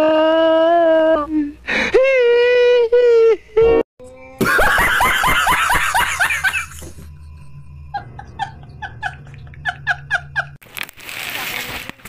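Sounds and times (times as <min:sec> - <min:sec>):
man laughing hard: 0:04.4 - 0:07.1, 0:07.9 - 0:10.6.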